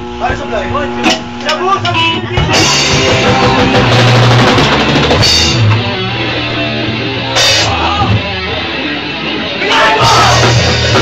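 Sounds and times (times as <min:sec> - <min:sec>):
live rock band playing: 0:01.0 - 0:11.0
drum kit and bass drum: 0:02.2 - 0:08.7, 0:09.6 - 0:11.0.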